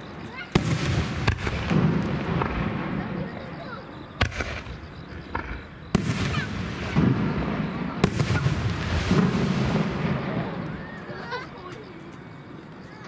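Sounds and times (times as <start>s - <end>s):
firework shells bursting: 4.2s - 10.9s.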